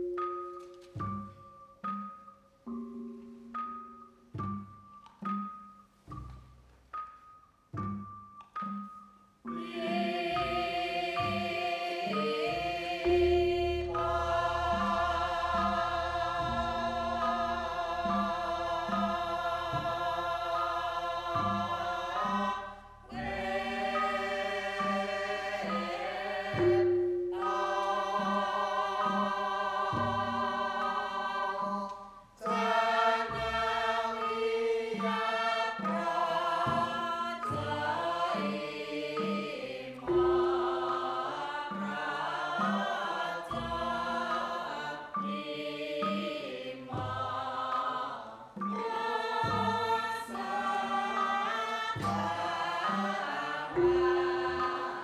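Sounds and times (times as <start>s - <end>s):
chorus singing long notes: 8.6s - 55.0s.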